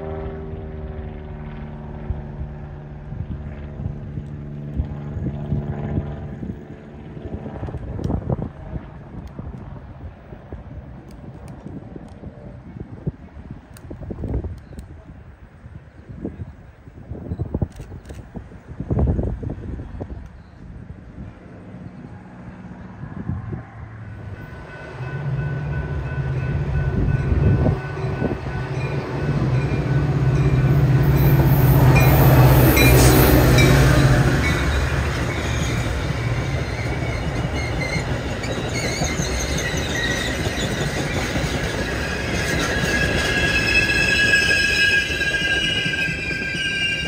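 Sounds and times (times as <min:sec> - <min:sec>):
train engine drone: 0:00.0 - 0:47.0
rumble of rolling coaches: 0:02.0 - 0:47.0
high-pitched wheel squeals: 0:30.6 - 0:47.0.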